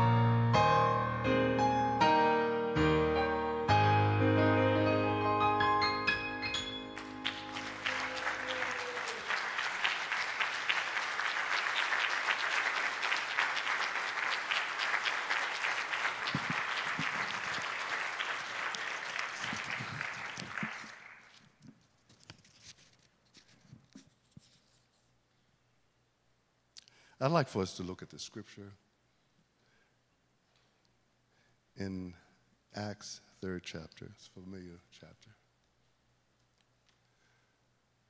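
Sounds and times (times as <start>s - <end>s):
electronic keyboard chord: 0.0s - 7.8s
congregation applauding: 6.4s - 21.5s.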